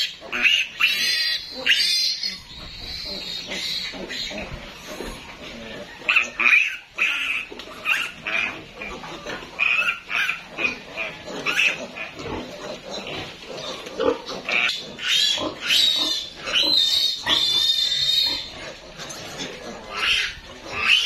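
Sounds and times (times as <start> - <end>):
piglet squealing: 0.0 - 5.3, 14.5 - 21.0.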